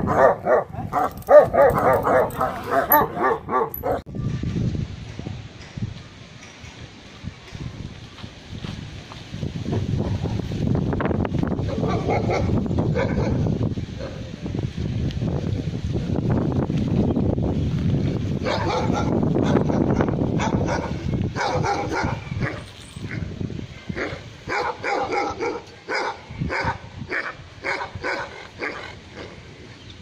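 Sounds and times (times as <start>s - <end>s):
dog barking: 0.0s - 4.0s, 11.7s - 13.4s, 18.4s - 22.6s, 24.0s - 28.9s
wind rumble on microphone: 0.0s - 30.0s.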